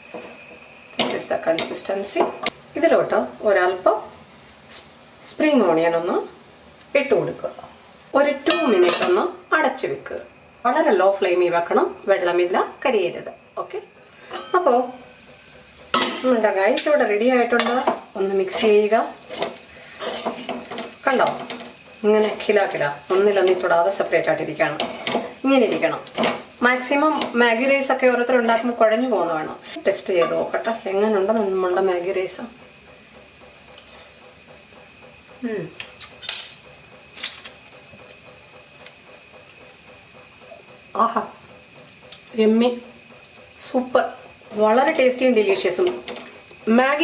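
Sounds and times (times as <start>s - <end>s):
metal spoon scraping pan: 17.6s - 23.6s, 24.6s - 28.8s.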